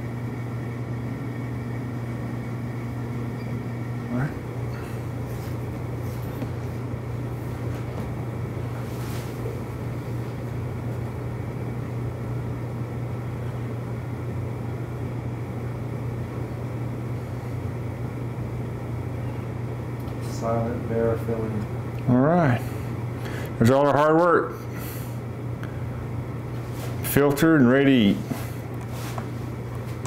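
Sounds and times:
low mechanical hum: 0.0 - 30.0.

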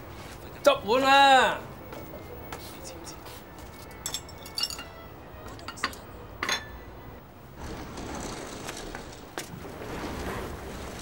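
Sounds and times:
steady low hiss: 0.0 - 11.0
bowls and chopsticks clinking: 3.9 - 5.0, 5.6 - 6.8.

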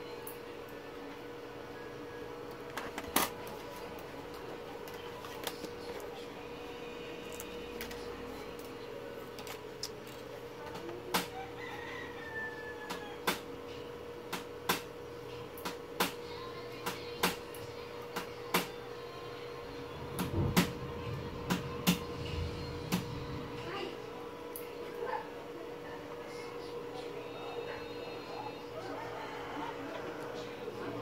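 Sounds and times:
steady hum: 0.0 - 31.0
rooster crowing faintly: 11.2 - 13.5, 27.4 - 31.0.

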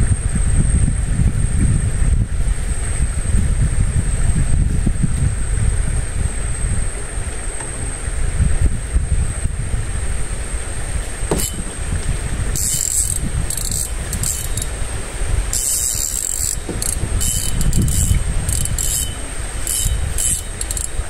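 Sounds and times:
steady low rumble: 0.0 - 21.0
fishing reel whirring: 11.3 - 21.0.

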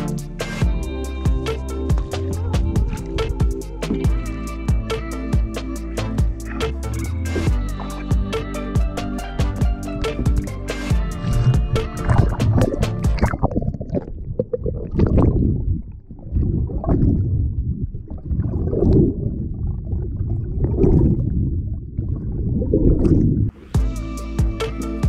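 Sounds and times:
muffled underwater gurgling: 2.4 - 4.4, 9.5 - 23.7.

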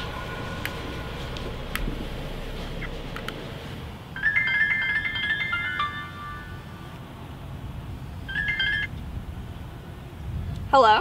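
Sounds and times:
low background rumble: 0.0 - 4.3
phone ringtone melody: 4.1 - 6.8, 8.3 - 8.9.

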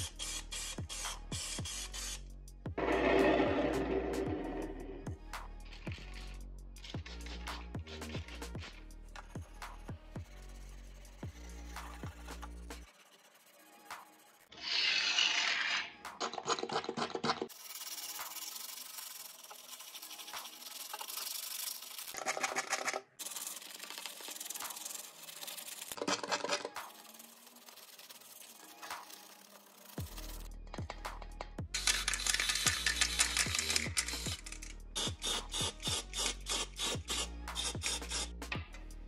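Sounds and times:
toothbrush scrubbing metal: 10.2 - 31.0, 31.8 - 38.3.

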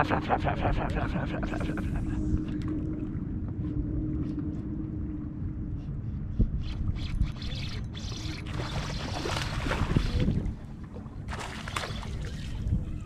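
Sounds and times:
low steady rumble: 0.0 - 7.3
fish splashing in water: 11.3 - 12.6.

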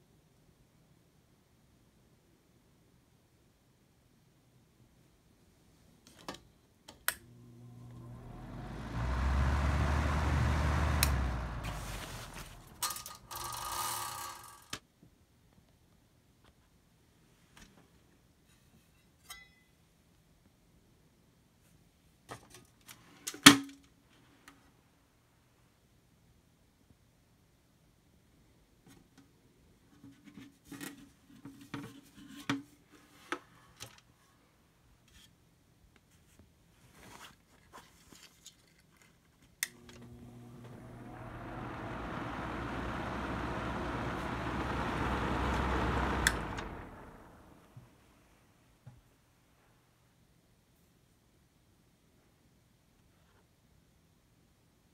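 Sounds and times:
faint fan whine: 6.9 - 14.8, 39.6 - 48.7
exhaust fan rushing air: 7.2 - 14.3, 39.7 - 47.8
metal scraping and rattling: 11.6 - 14.6.

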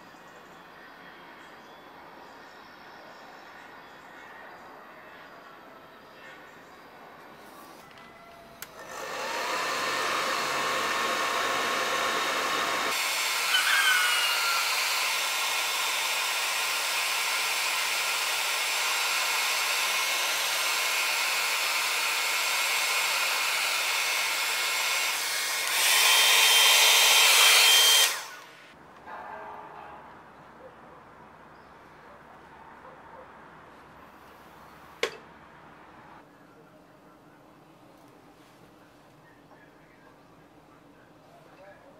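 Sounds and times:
hair dryer blowing air: 8.6 - 28.8.

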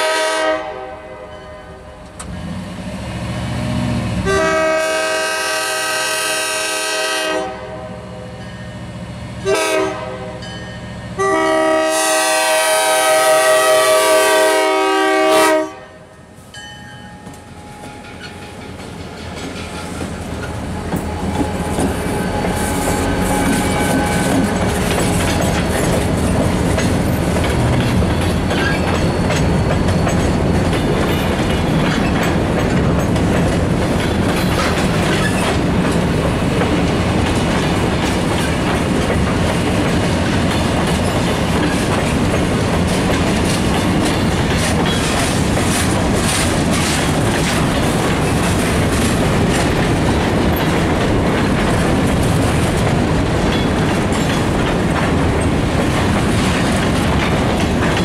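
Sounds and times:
freight train cars rumbling: 0.0 - 58.0
wheels clicking over rail joints: 17.1 - 58.0.

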